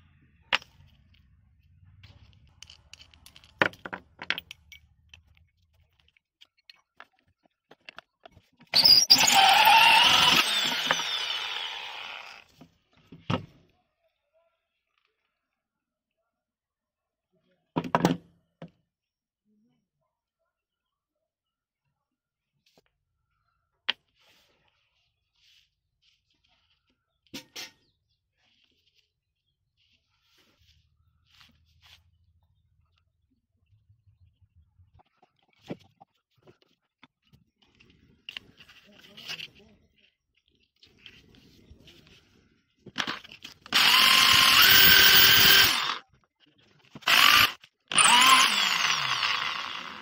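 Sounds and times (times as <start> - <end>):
electric drill whining: 8.8 - 12.5, 43.6 - 46.0, 47.0 - 50.0.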